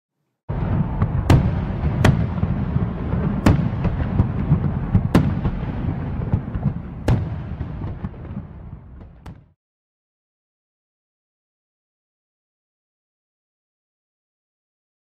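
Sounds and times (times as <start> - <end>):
fireworks bangs: 0.5 - 9.6.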